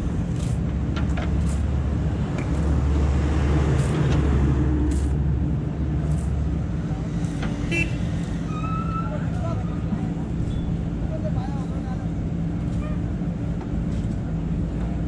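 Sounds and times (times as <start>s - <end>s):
diesel engine running: 0.0s - 8.6s.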